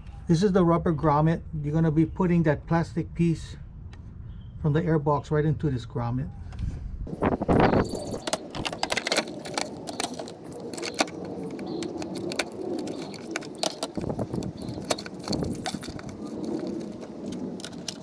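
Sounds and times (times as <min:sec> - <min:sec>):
plastic parts clicking and knocking: 0:07.8 - 0:18.0.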